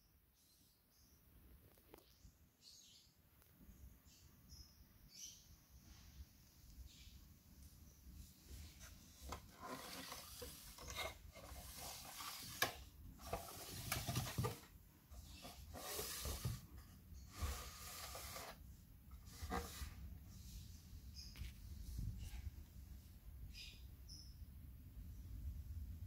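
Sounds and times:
rubbing and scraping: 8.5 - 20.2.

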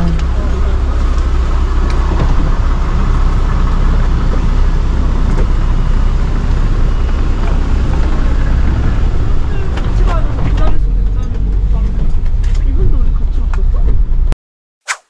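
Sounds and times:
vehicle engine rumble: 0.0 - 14.4.

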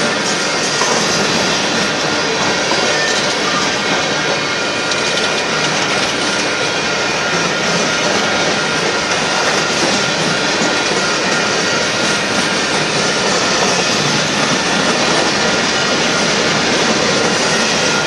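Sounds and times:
train cars rumbling on rails: 0.0 - 18.0.

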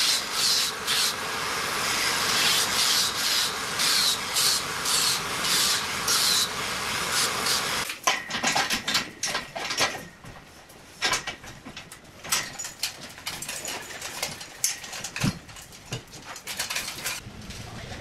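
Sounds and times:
angle grinder sanding: 0.0 - 7.8
chain hoist clinking and rattling: 11.0 - 17.2.

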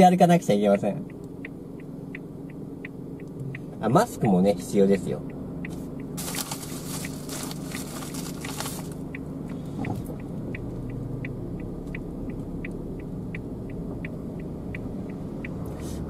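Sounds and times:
turn signal ticking: 0.0 - 16.0
car cabin rumble: 0.2 - 16.0
crackly rustling: 6.2 - 9.1.

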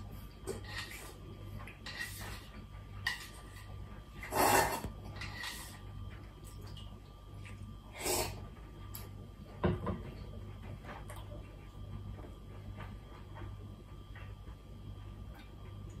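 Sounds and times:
low steady hum: 0.0 - 16.0
person slurping noodles: 4.2 - 4.9, 7.9 - 8.4.

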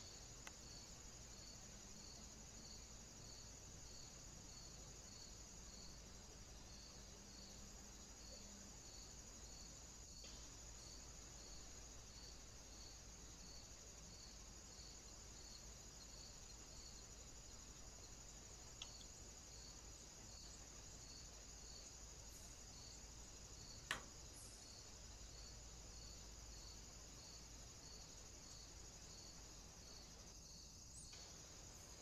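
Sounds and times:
crickets trilling: 0.0 - 32.0
small tick: 0.4 - 0.6, 10.2 - 10.4, 18.8 - 19.1, 23.8 - 24.1, 31.0 - 31.3.

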